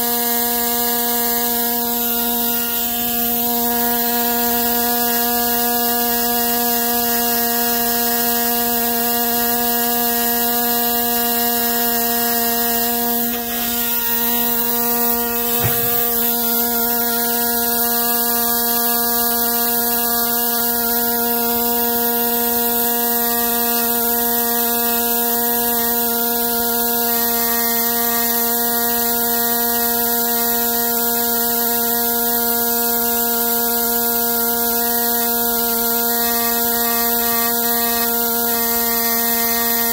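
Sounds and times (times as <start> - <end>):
engraving tool buzzing on rock: 0.0 - 39.9
short knock: 15.3 - 16.4.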